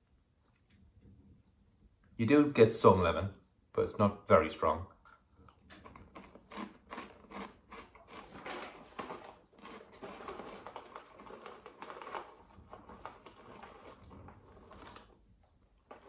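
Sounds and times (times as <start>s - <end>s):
crisps being crunched and chewed: 5.5s - 16.0s.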